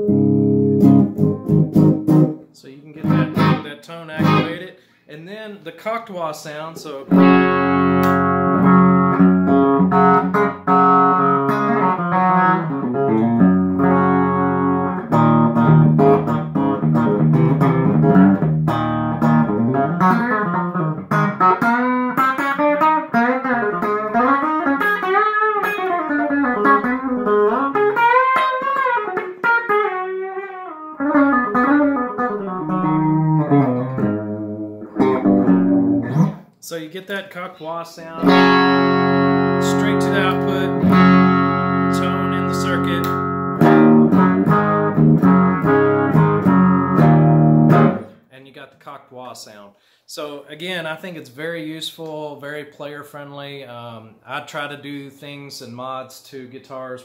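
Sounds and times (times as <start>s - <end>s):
wah-toned electric guitar: 0.0s - 2.4s, 3.0s - 4.6s, 7.1s - 36.4s, 38.2s - 48.2s.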